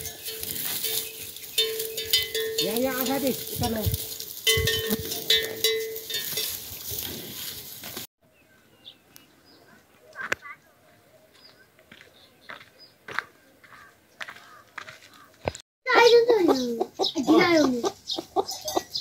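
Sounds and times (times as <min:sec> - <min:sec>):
metal bell clanking: 0:00.0 - 0:06.8, 0:18.5 - 0:19.0.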